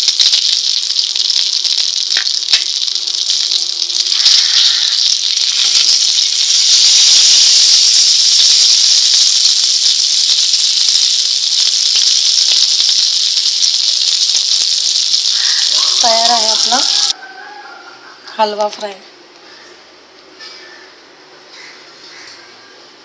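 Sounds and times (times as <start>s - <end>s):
fish sizzling in hot oil: 0.0s - 17.2s.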